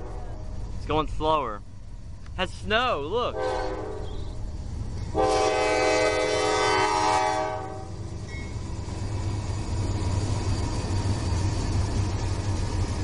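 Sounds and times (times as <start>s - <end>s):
locomotive air horn blast: 0.0s - 0.6s, 3.3s - 4.4s, 5.1s - 8.0s
locomotive engines rumbling past: 0.0s - 13.0s.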